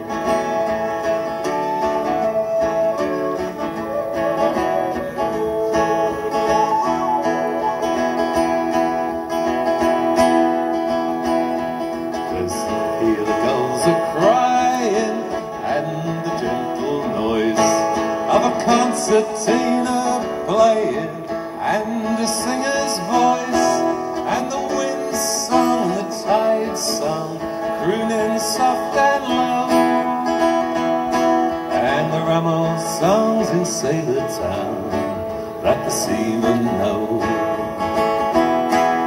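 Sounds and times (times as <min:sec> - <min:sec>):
acoustic guitar strumming: 0:00.0 - 0:39.0
harmonica playing melody: 0:00.3 - 0:09.4.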